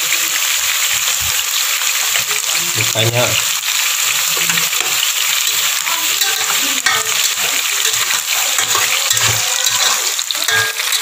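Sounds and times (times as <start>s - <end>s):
eel sizzling in a pot: 0.0s - 11.0s
spatula scraping a metal pot: 4.2s - 11.0s.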